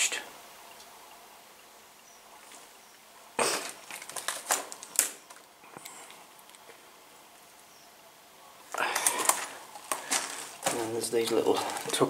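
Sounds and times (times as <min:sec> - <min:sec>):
footsteps crunching dry twigs: 0:03.4 - 0:05.5, 0:08.7 - 0:12.0.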